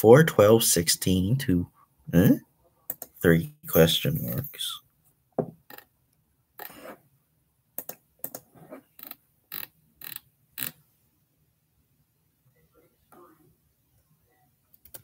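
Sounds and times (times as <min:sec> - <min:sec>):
computer keyboard keys clicking: 0:14.8 - 0:15.0.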